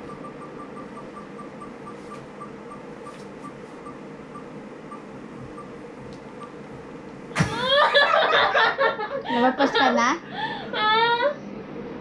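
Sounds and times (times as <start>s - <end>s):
spinning wheel ticking: 0.0s - 5.8s.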